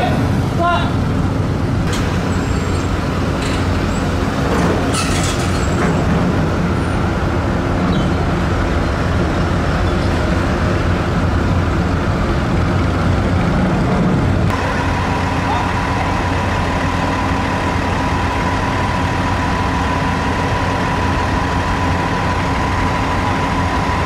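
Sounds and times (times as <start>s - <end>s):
vehicle engines rumbling: 0.0s - 24.0s
metallic clanks and rattles: 1.9s - 6.7s.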